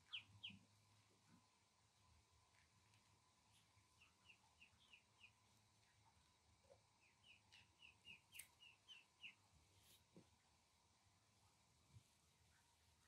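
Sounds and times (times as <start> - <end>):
duckling peeping: 0.0 - 0.7, 3.6 - 5.4, 7.0 - 9.4.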